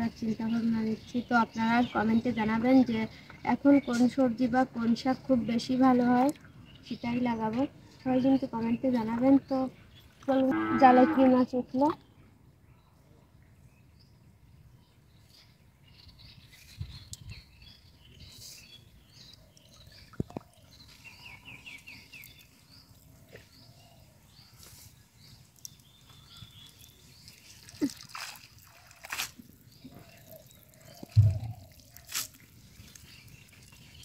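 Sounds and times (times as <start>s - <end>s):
water dripping and splashing: 19.2s - 23.4s, 25.2s - 34.0s
heavy low thump: 31.2s - 31.6s.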